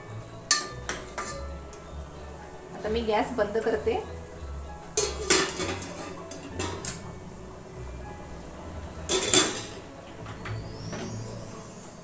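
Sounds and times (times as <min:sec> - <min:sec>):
metal lid clattering on pot: 0:00.5 - 0:01.4, 0:05.0 - 0:07.0, 0:09.1 - 0:09.8.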